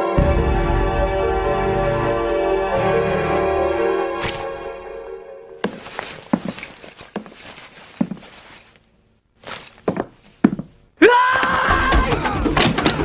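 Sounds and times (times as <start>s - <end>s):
irregular thuds and knocks: 9.4s - 10.8s.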